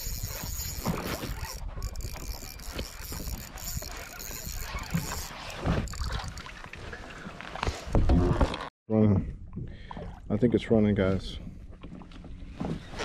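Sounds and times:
fishing reel gears ticking: 0.0 - 5.3.

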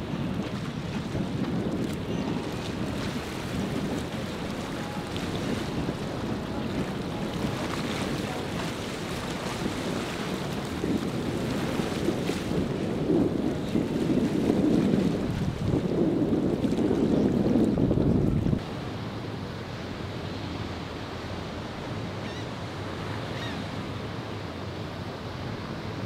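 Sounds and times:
wind buffeting microphone: 0.0 - 18.9
waves breaking: 0.0 - 26.0
outboard motors running: 0.4 - 16.0.

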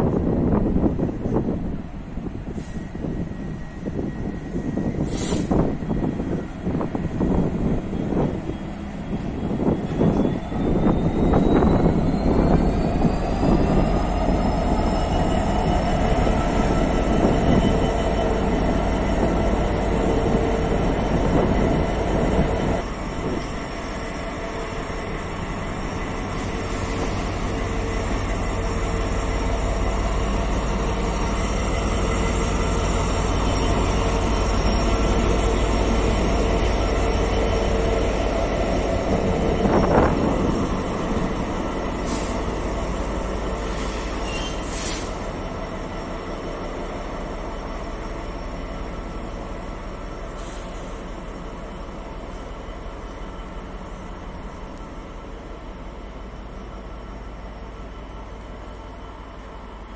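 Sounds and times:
diesel locomotive engine throbbing: 0.0 - 59.9.

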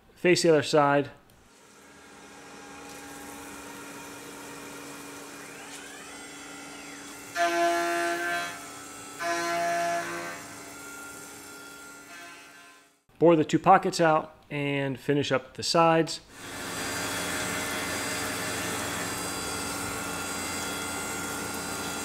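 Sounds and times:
milling machine spindle hum: 1.5 - 12.2, 16.4 - 22.0
high-pitched cutting whine: 4.0 - 11.0.

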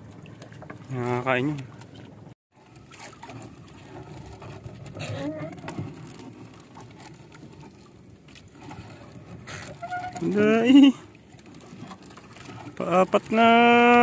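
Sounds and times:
water splashing at hull: 0.0 - 14.0
wet fishing net rustling: 2.6 - 13.4.

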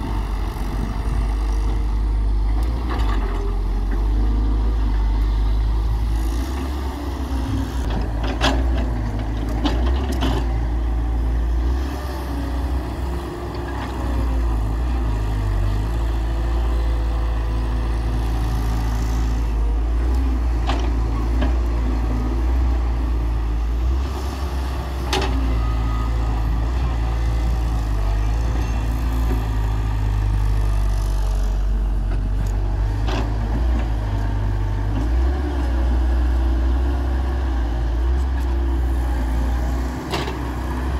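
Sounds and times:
excavator diesel engine running: 0.0 - 40.9.

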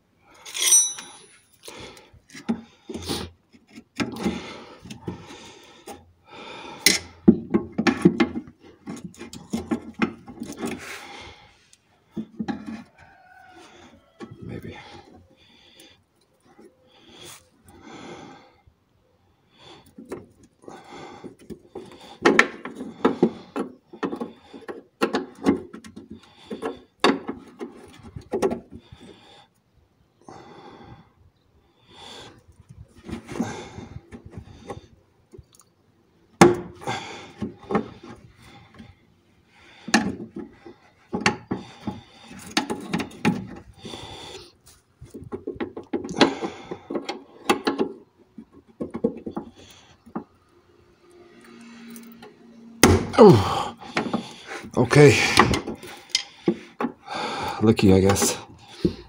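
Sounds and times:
metal tools clicking and knocking: 0.5 - 1.5, 55.4 - 56.3.

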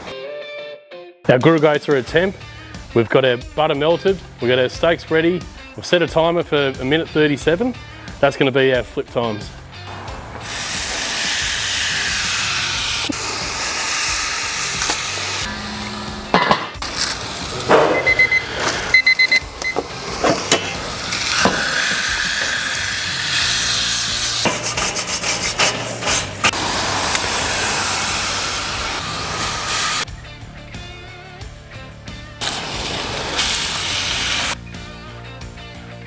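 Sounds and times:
steak sizzling on grill: 9.9 - 16.2, 16.8 - 30.0, 32.4 - 34.6
metal spatula scraping grates: 20.4 - 26.6.

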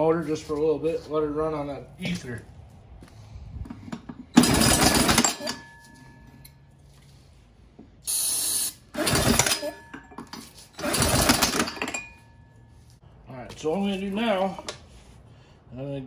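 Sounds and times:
engine cranked by drill: 4.1 - 5.6, 8.1 - 9.8, 10.5 - 12.1.

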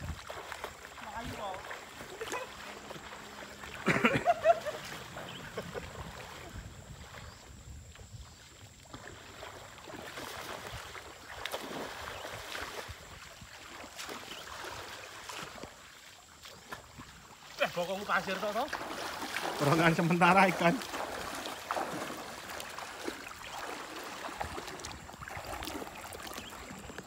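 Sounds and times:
person wading through water: 0.0 - 27.0
throw net splashing into water: 8.9 - 15.8, 16.4 - 26.8.

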